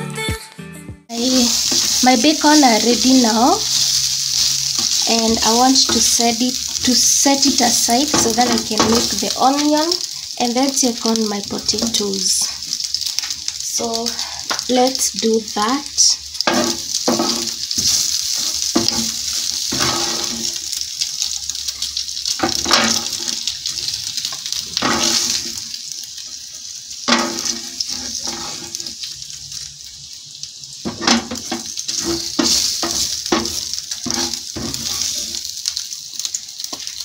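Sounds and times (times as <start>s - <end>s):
bacon sizzling in a pan: 1.1s - 37.0s
spatula scraping and knocking pan: 1.3s - 9.3s, 16.4s - 20.6s, 22.4s - 23.5s, 24.8s - 25.6s, 27.1s - 29.0s, 30.8s - 35.4s.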